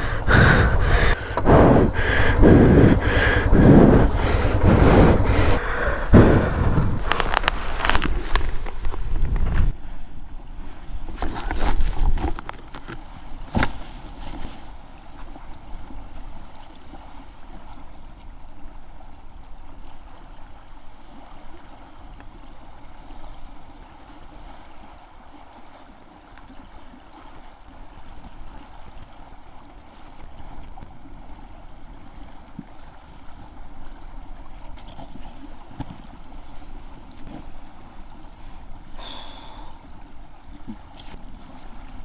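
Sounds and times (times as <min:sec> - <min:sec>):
wind on microphone: 0:00.0 - 0:12.4.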